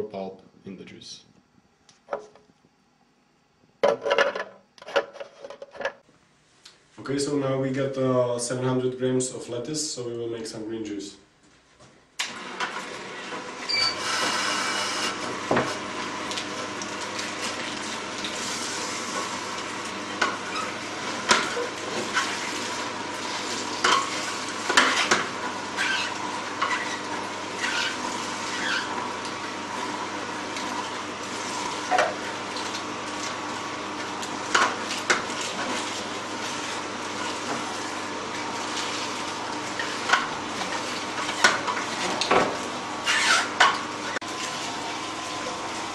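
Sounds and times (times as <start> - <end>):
juicer motor hum: 12.2 - 45.9.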